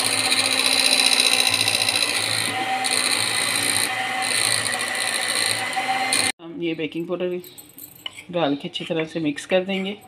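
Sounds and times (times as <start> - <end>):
electric hand mixer whirring: 0.0 - 6.4.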